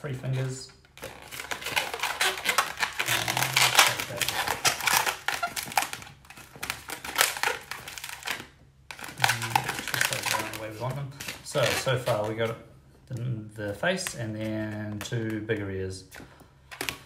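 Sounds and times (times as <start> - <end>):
balloon squeaking while twisted: 0.1 - 12.5.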